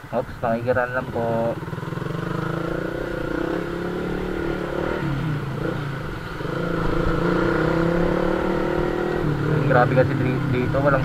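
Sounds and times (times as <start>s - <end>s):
motor scooter engine running: 1.0s - 11.0s.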